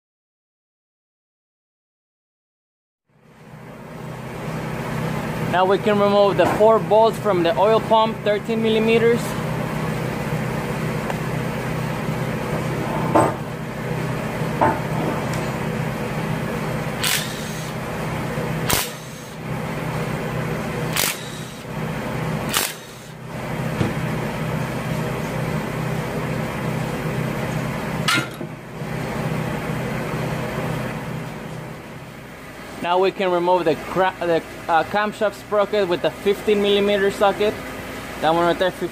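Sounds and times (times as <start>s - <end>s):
steady low hum: 3.2s - 38.9s
impact wrench bursts: 17.0s - 17.8s, 18.6s - 19.4s, 20.8s - 21.7s, 22.4s - 23.2s.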